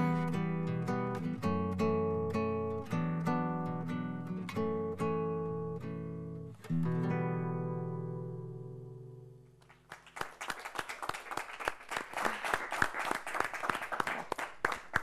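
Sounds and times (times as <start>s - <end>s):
guitar chord ringing: 0.0s - 9.4s
audience applauding: 9.6s - 15.0s.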